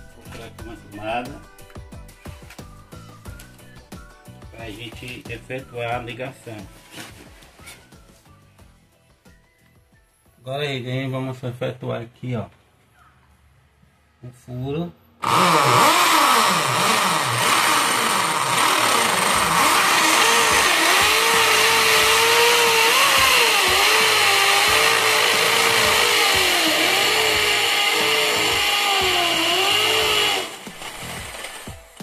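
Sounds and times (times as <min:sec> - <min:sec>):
electric drill boring into wall: 0:15.2 - 0:32.0.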